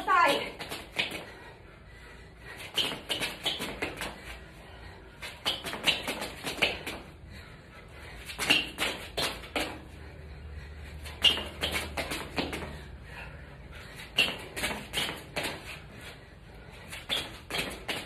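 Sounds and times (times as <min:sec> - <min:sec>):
sneakers tapping on concrete: 0:02.7 - 0:04.3, 0:05.2 - 0:07.0, 0:08.3 - 0:09.8, 0:11.2 - 0:12.8, 0:14.1 - 0:15.7.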